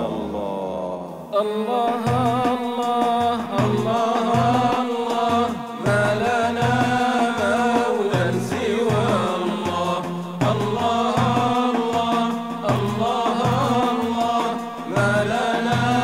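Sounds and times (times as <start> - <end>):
steady low beat: 3.2 - 16.0.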